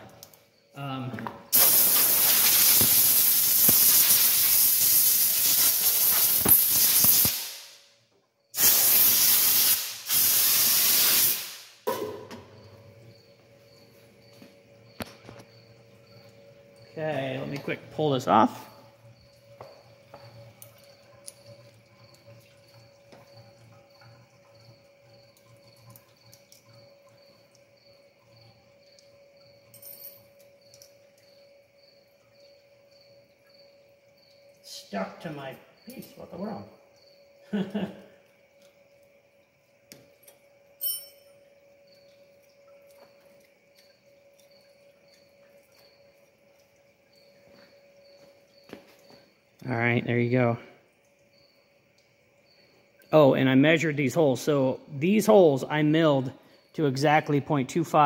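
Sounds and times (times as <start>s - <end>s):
compressed air blow gun hissing: 1.5s - 7.8s, 8.6s - 11.8s.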